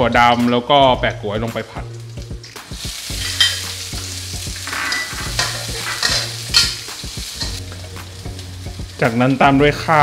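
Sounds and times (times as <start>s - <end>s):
food sizzling in oil: 0.0s - 10.0s
metal spatula scraping a wok: 4.6s - 6.8s.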